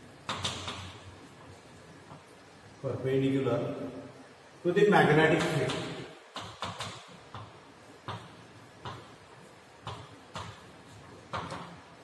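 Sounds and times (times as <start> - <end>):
chalk tapping on blackboard: 5.4 - 9.2, 9.8 - 10.7.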